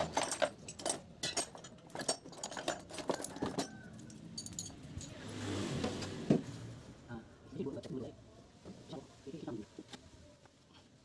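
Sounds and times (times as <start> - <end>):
clicks and clinks of small parts: 0.0 - 5.2.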